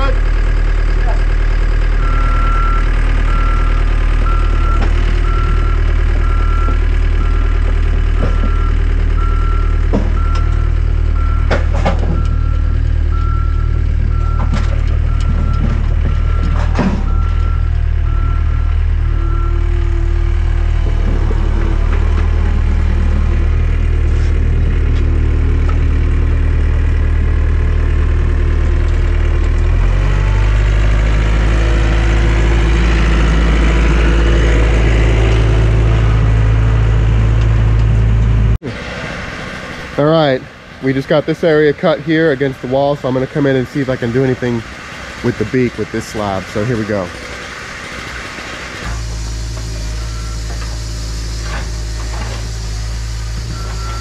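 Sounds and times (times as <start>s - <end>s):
heavy machine engine running: 0.0s - 54.0s
backup alarm beeping: 8.4s - 11.5s, 12.1s - 19.6s.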